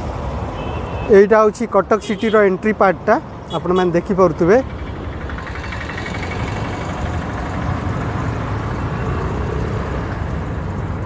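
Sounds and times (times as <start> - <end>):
motorcycles and cars passing: 0.0 - 11.0.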